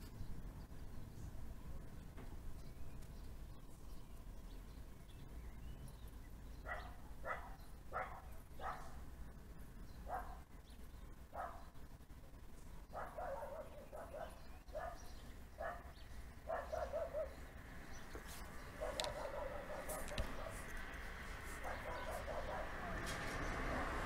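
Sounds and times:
dog barking: 0:06.6 - 0:09.0, 0:10.1 - 0:10.4, 0:11.3 - 0:11.7, 0:13.0 - 0:17.4, 0:18.8 - 0:20.7, 0:21.6 - 0:23.1.

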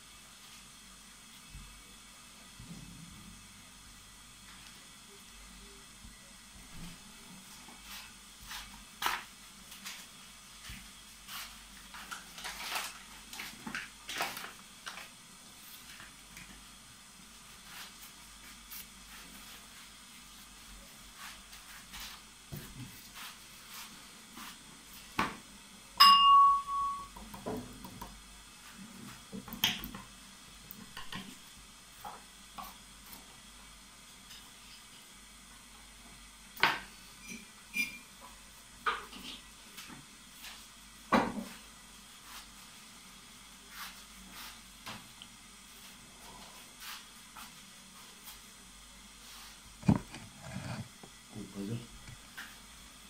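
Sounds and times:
paintbrush strokes on paper: 0:07.2 - 0:12.1, 0:17.3 - 0:25.1, 0:42.1 - 0:42.9, 0:43.5 - 0:44.7, 0:45.7 - 0:48.5, 0:49.2 - 0:49.6
sharp ringing clink: 0:26.0 - 0:27.2.

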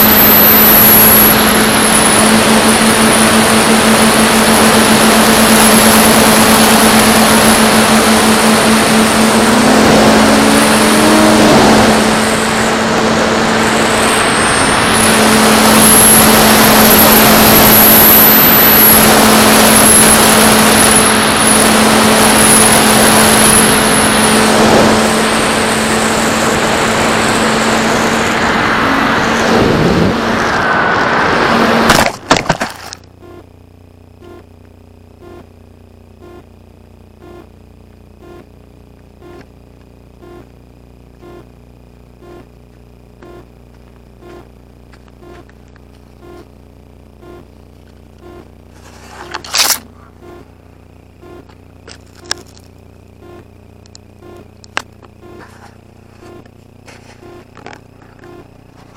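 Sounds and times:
electric motor and propeller hum: 0:00.0 - 0:58.9
high motor whine: 0:00.0 - 0:58.9
wind rush: 0:27.0 - 0:31.9
crash into brush: 0:31.8 - 0:33.0.

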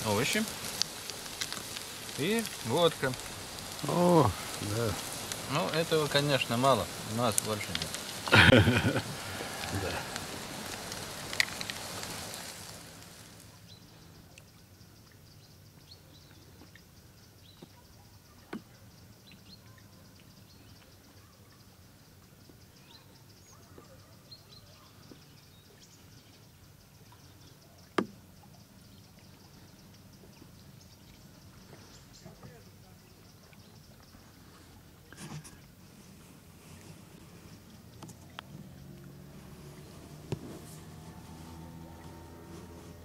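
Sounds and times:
potato slices sizzling in a pan: 0:00.0 - 0:13.5
small ticks: 0:00.3 - 0:08.3, 0:09.4 - 0:12.8, 0:37.5 - 0:42.7.

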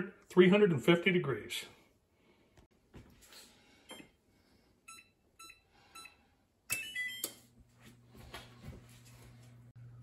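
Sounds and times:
oven humming: 0:07.1 - 0:10.0.

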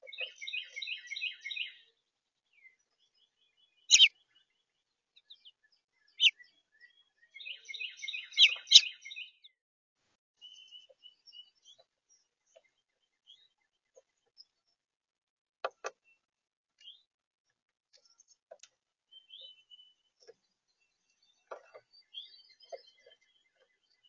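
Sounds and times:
songbird twittering: 0:00.0 - 0:02.0, 0:02.6 - 0:04.6, 0:05.2 - 0:09.6, 0:19.1 - 0:24.0.

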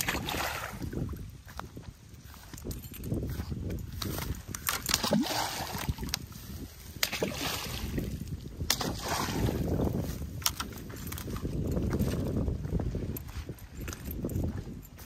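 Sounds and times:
water splashing in a pond: 0:00.0 - 0:01.2, 0:04.6 - 0:10.0.

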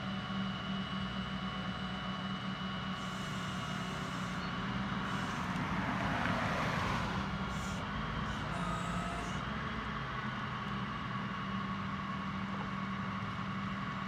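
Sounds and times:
truck engine running: 0:00.0 - 0:14.0
car driving past: 0:05.1 - 0:07.8.

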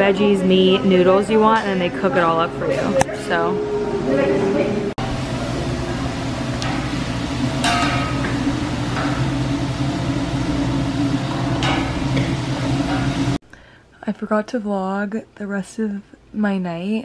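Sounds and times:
kitchen machine hum: 0:00.0 - 0:13.4.

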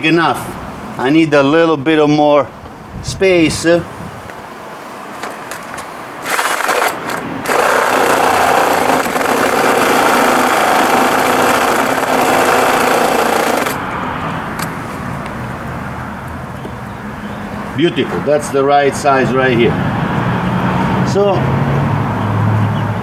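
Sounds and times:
electric drill grinding plastic: 0:06.2 - 0:13.8.

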